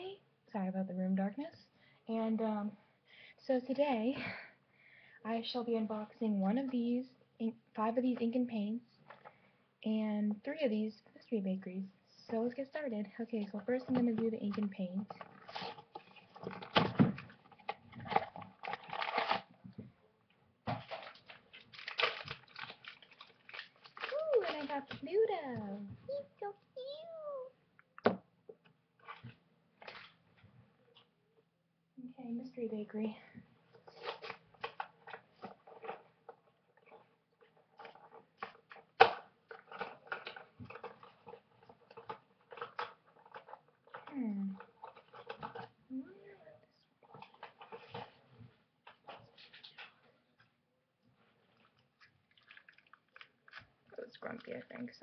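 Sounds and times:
packaging crinkling: 17.5s - 19.5s, 20.8s - 25.1s.

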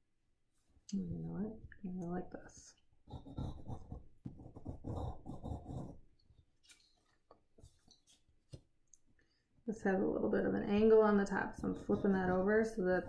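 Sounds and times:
pencil scratching on paper: 3.0s - 6.1s, 11.3s - 13.0s.

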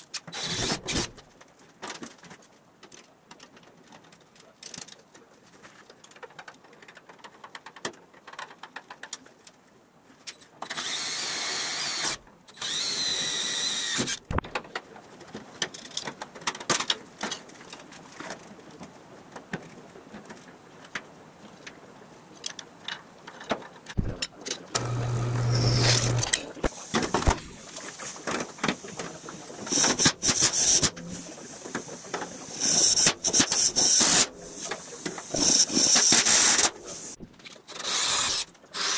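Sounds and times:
clicks and knocks of parts: 0.0s - 9.6s, 14.0s - 21.0s
drill boring through metal: 10.7s - 14.2s, 24.8s - 26.6s, 32.6s - 34.3s, 37.8s - 38.9s.

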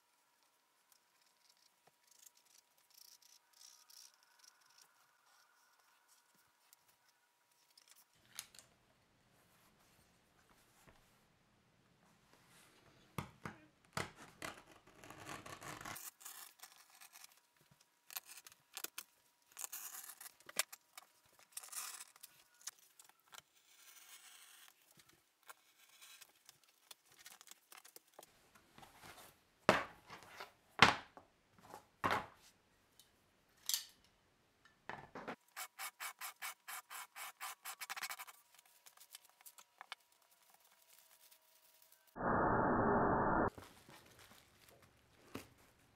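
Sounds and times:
plastic wrap crinkling: 38.3s - 42.1s, 43.5s - 45.9s.

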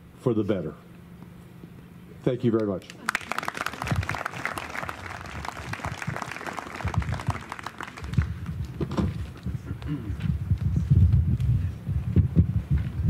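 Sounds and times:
audience applauding: 2.9s - 8.8s
microphone handling thumps: 8.2s - 13.0s.

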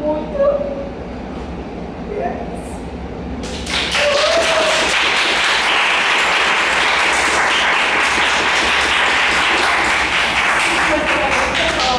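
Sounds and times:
audience applauding: 3.4s - 11.9s
brief shout: 3.9s - 5.0s.

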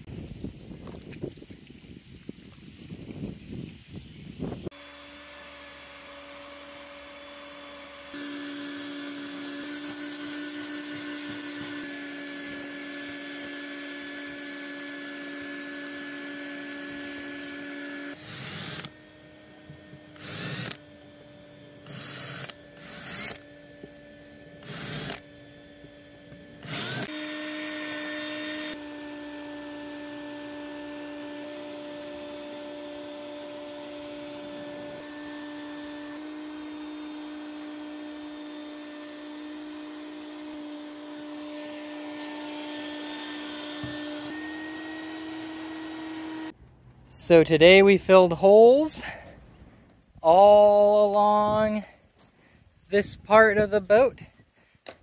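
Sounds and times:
power tool motor whining: 4.6s - 46.6s.

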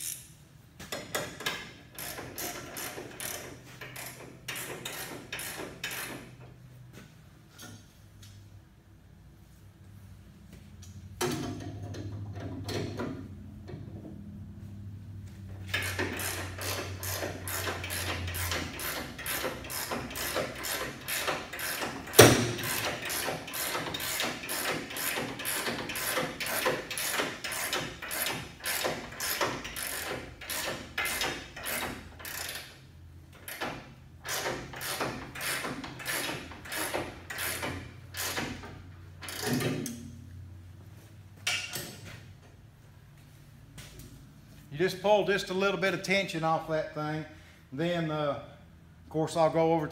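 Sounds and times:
hand ratchet clicking: 0.0s - 0.3s, 0.9s - 6.3s, 15.7s - 40.0s.

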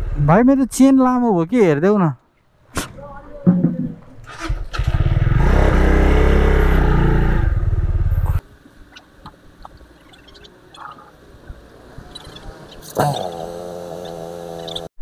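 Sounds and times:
motorcycle engine revving: 4.3s - 8.4s, 12.2s - 15.0s.

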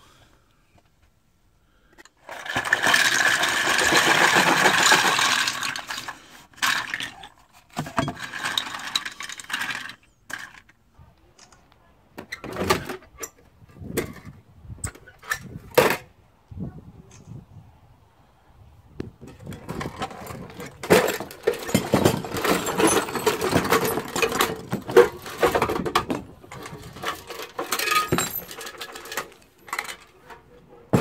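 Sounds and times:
plastic bottle caps clattering: 2.3s - 10.7s, 19.4s - 30.2s
metal toolbox knocks and clanks: 19.5s - 31.0s.

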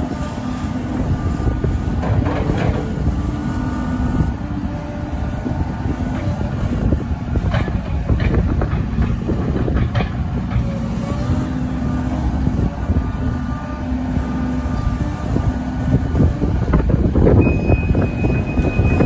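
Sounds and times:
excavator diesel engine running: 0.0s - 19.0s
hydraulic whine: 10.5s - 19.0s.

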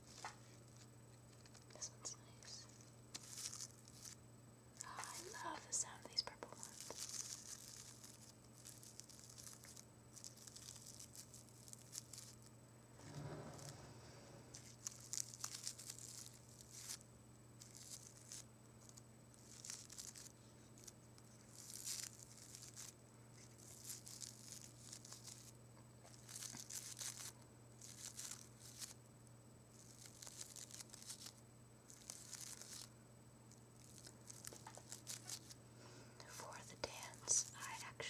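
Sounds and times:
flower petals rustling: 0.0s - 4.2s, 4.8s - 29.0s, 29.7s - 33.0s, 33.7s - 35.6s.

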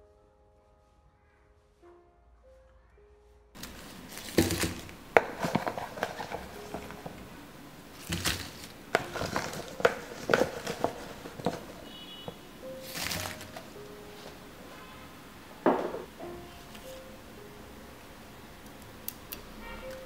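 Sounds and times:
leaf rustling: 3.6s - 14.9s
fruit dropping into metal strainer: 4.2s - 7.1s.

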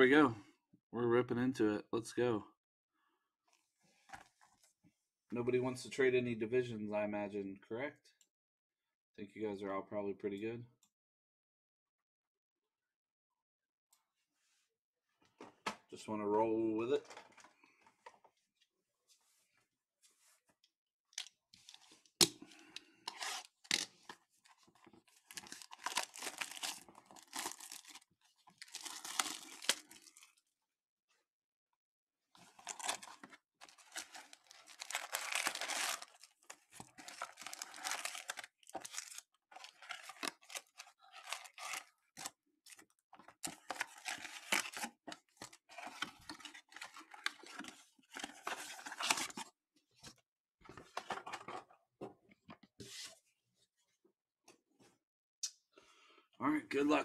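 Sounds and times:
foil packs crinkling: 22.5s - 30.3s, 32.4s - 49.4s
packaging being torn open: 25.2s - 28.0s, 28.6s - 30.3s, 32.5s - 42.3s, 43.4s - 47.6s.

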